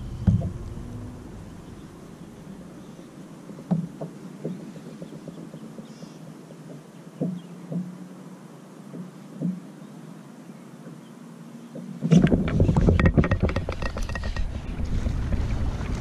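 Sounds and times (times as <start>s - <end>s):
short thump: 0.0s - 0.9s
faint low hum: 0.0s - 13.2s.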